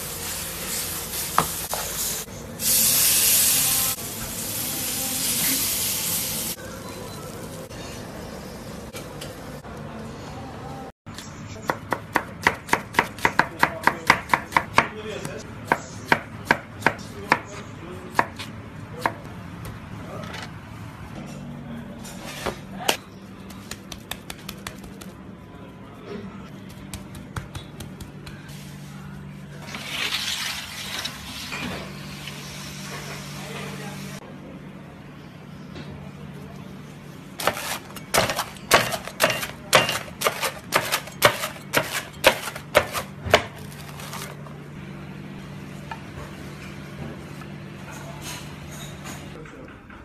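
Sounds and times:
knife chopping on a wooden board: 0:11.7 - 0:15.0, 0:37.4 - 0:43.7.

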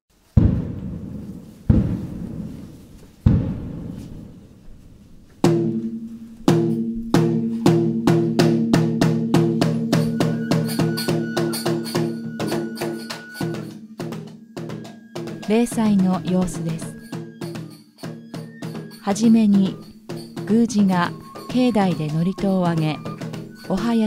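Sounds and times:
taiko drum strikes: 0:00.4 - 0:04.8, 0:05.4 - 0:17.7
thin high held note: 0:10.0 - 0:14.0.

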